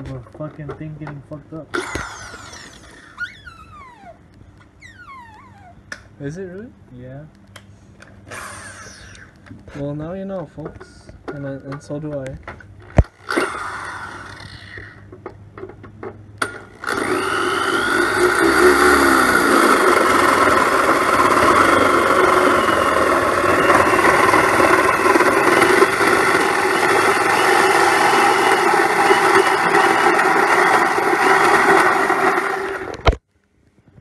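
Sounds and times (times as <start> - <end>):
electric drill cutting sheet metal: 1.8 - 3.8, 8.3 - 9.3, 13.0 - 15.0, 16.4 - 33.2.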